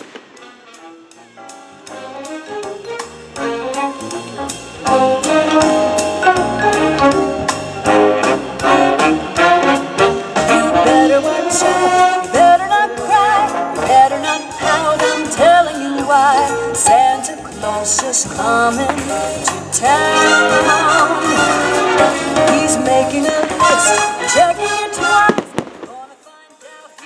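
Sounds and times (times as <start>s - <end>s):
big band jazz with brass: 0.0s - 25.9s.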